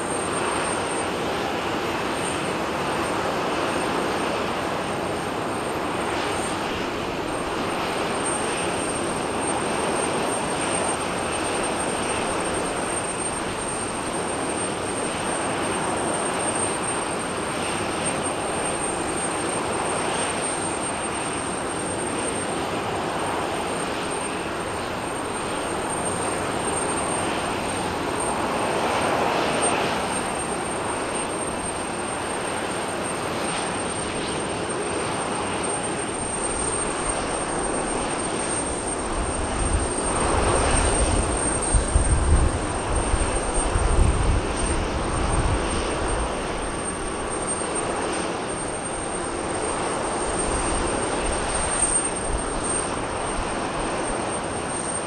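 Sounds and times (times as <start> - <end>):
jet engines idling: 0.0 - 55.0.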